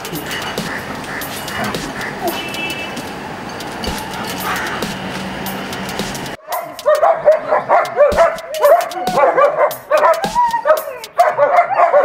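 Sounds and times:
dogs whining and yipping: 6.6 - 12.0.

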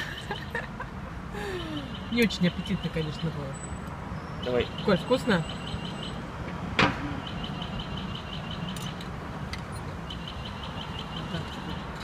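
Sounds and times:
street traffic hum: 0.0 - 12.0
crossing signal chirping: 1.6 - 6.3, 7.0 - 9.1, 9.7 - 12.0.

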